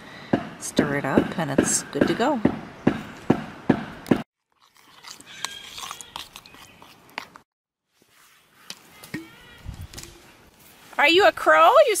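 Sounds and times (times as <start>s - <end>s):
spoon mashing wet applesauce: 4.6s - 7.4s.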